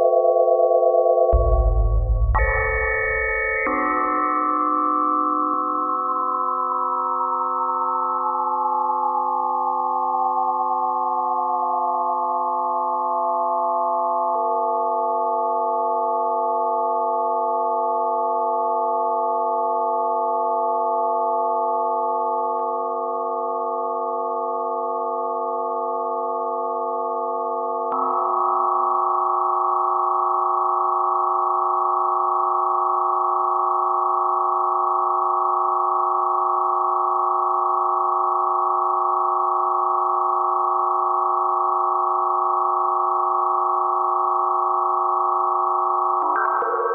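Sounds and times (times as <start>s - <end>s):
electronic sine tone drone: 0.0s - 46.9s
click: 22.4s - 22.8s, 46.2s - 46.8s.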